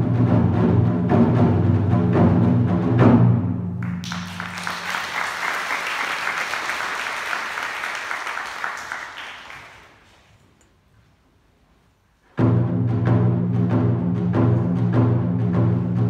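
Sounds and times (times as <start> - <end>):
audience applauding: 3.8 - 10.3.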